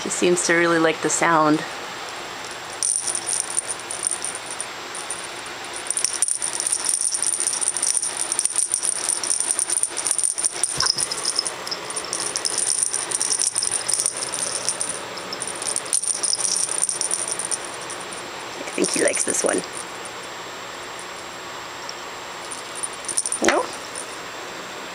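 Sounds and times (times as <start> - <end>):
cat toy jingling rattle: 2.4 - 20.2, 22.4 - 24.1.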